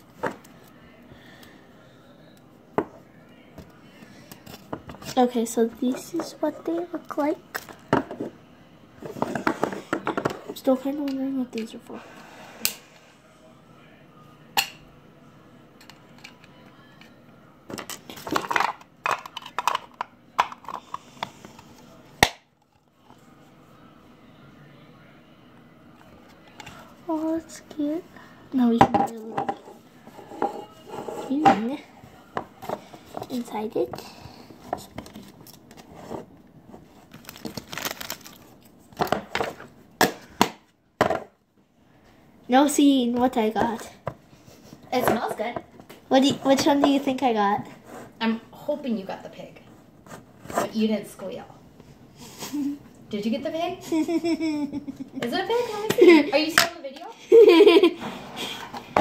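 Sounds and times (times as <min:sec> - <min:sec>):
plastic packaging crinkling and tearing: 0:37.0 - 0:38.7.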